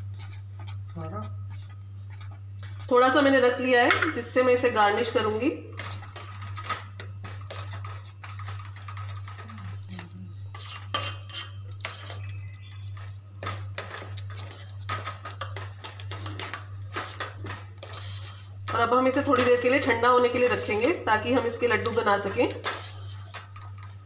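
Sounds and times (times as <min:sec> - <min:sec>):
spoon scraping steel pan: 0:10.5 - 0:15.6.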